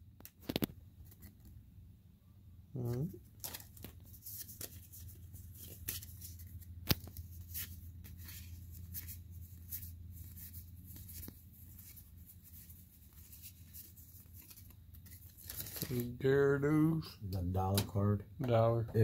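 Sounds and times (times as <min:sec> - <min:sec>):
cards being flipped by hand: 0:00.2 - 0:01.6, 0:02.8 - 0:16.2
steady low hum: 0:00.8 - 0:19.0.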